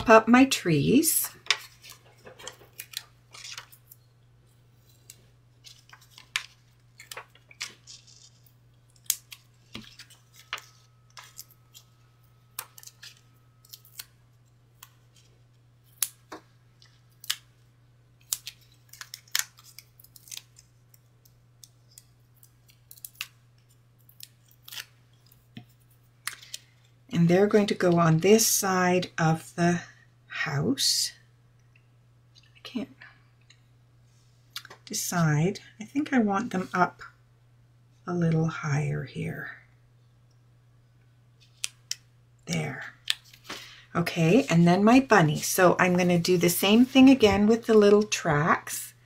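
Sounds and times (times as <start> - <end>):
paper pieces clicking and crinkling: 1.5 - 4.0, 4.9 - 11.9, 18.2 - 25.4.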